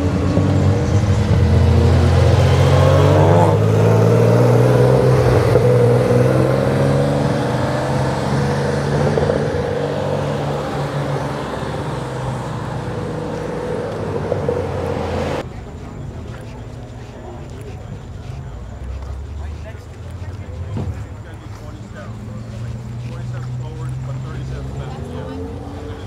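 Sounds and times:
car engine and exhaust running: 0:00.0 - 0:26.0.

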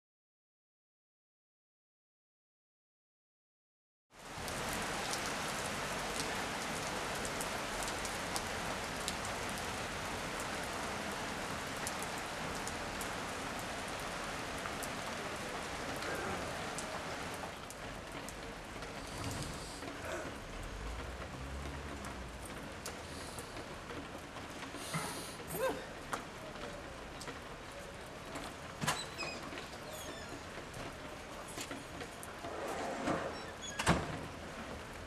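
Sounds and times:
rain falling on wet street: 0:04.1 - 0:35.0
raindrops clicking close by: 0:04.2 - 0:32.6.

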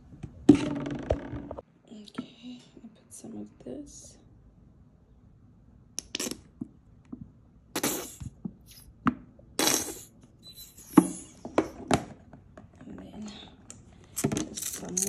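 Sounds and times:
bottle squirting liquid: 0:07.8 - 0:08.9, 0:09.6 - 0:11.5.

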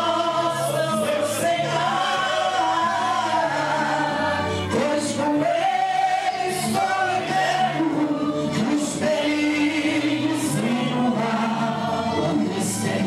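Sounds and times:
man singing into microphone: 0:00.0 - 0:13.0.

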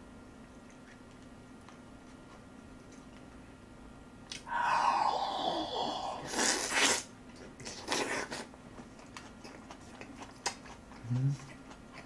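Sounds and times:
person slurping food: 0:04.7 - 0:07.1.

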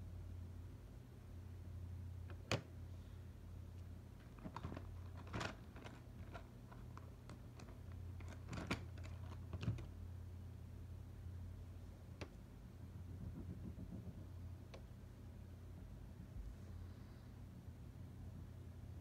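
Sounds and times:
low steady hum: 0:00.0 - 0:19.0
pencil tapping on paper: 0:13.1 - 0:14.9.

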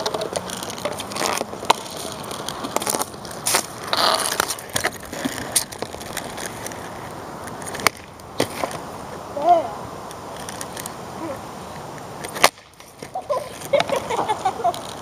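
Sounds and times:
hockey stick clacking ball: 0:00.0 - 0:06.8, 0:07.6 - 0:08.8
skate wheels rolling on asphalt: 0:00.0 - 0:15.0.

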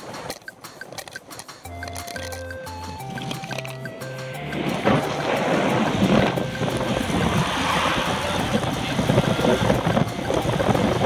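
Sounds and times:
wind buffeting microphone: 0:02.8 - 0:11.0.

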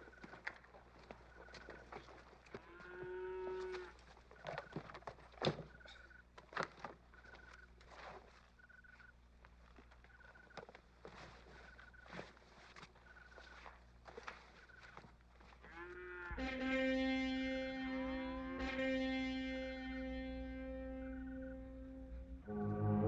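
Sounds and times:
camp gear rustling: 0:00.0 - 0:16.3
cow mooing: 0:02.6 - 0:03.9, 0:15.7 - 0:17.4.

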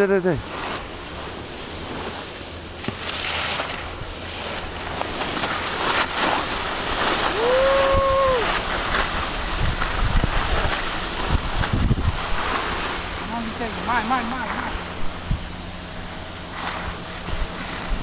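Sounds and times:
skis scraping over snow: 0:00.0 - 0:18.0
wind rushing over microphone: 0:05.5 - 0:18.0.

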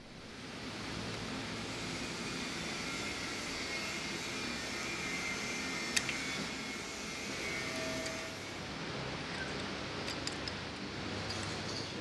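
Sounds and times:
workshop background noise: 0:00.4 - 0:12.0.

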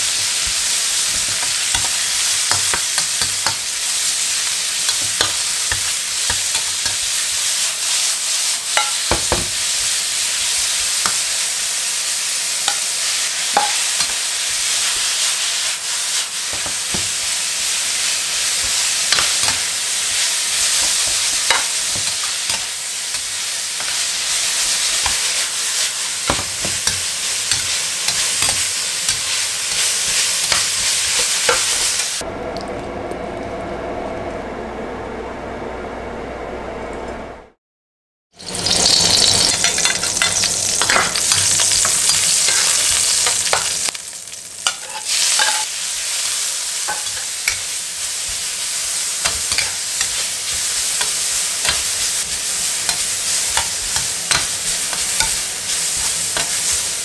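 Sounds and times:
food sizzling in a wok: 0:00.0 - 0:32.2, 0:38.3 - 0:57.0
metal spatula scraping a wok: 0:18.4 - 0:32.2, 0:44.6 - 0:56.9.

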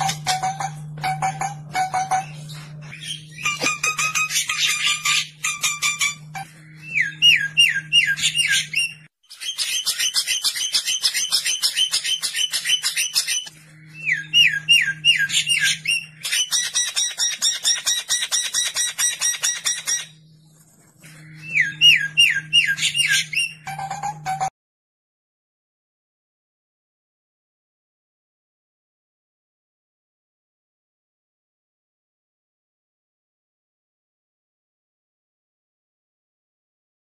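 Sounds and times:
bird harsh chattering rattles: 0:08.2 - 0:13.5, 0:14.7 - 0:20.2.

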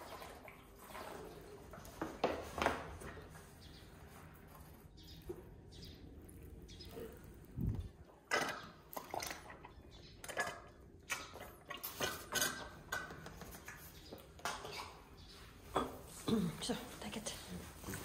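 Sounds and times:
elephant slurping from a bottle: 0:08.4 - 0:12.9.

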